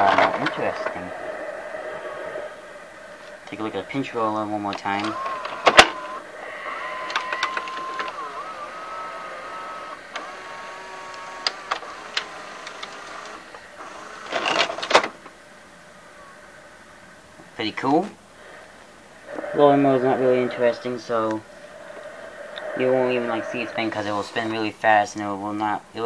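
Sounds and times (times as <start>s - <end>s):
small motor whining: 0.0s - 15.3s, 19.2s - 24.5s.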